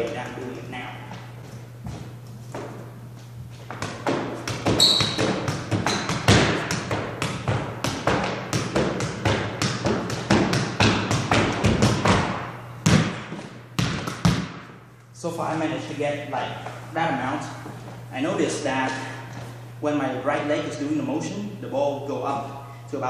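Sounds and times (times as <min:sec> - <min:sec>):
shoe steps on wooden floor: 0:01.1 - 0:12.3
foot thumping football: 0:01.1 - 0:14.8.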